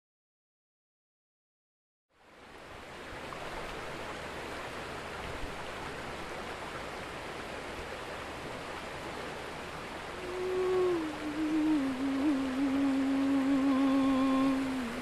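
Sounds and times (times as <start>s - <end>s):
river rushing over rapids: 2.2s - 15.0s
woman humming: 10.2s - 15.0s.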